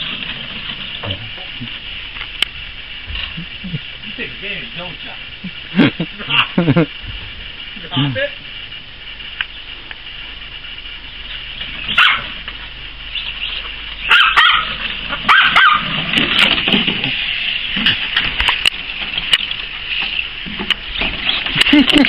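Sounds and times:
puppy barking and yipping: 0:11.9 - 0:12.4, 0:14.1 - 0:16.0.

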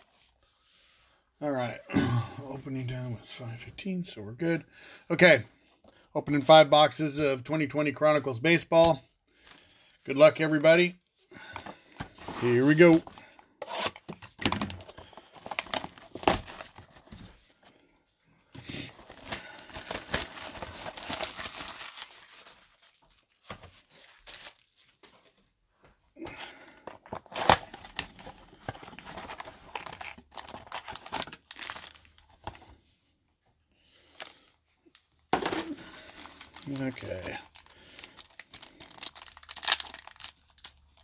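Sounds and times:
foil packs handled: 0:14.6 - 0:17.4, 0:18.9 - 0:25.4, 0:26.8 - 0:32.7, 0:35.4 - 0:41.0
plastic wrap tearing and crinkling: 0:14.7 - 0:17.1, 0:18.9 - 0:25.0, 0:27.2 - 0:32.4, 0:36.0 - 0:41.0.

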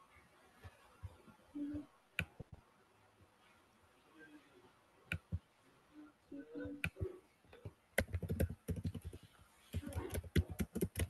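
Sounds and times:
computer clicks: 0:08.0 - 0:11.0.

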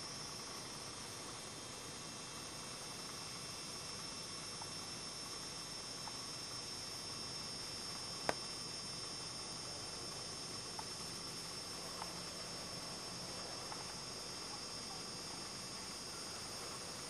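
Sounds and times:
faint hiss with high whine: 0:00.0 - 0:17.0
faint ticks: 0:11.8 - 0:12.3.

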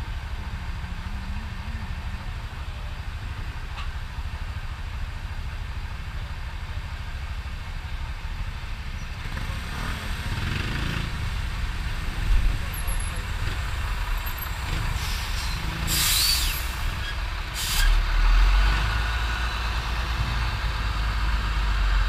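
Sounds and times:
motorcycle engine rumble: 0:00.0 - 0:17.6.

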